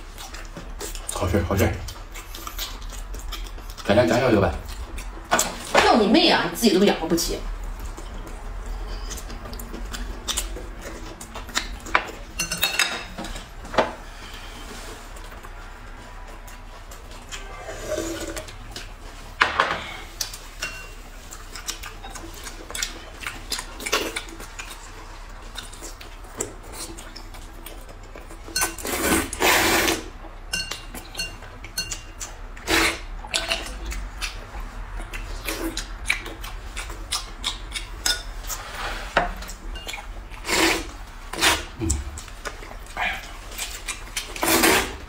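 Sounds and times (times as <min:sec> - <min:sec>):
people slurping noodles: 0:17.4 - 0:18.6, 0:28.8 - 0:30.1, 0:40.4 - 0:42.3, 0:44.4 - 0:45.0.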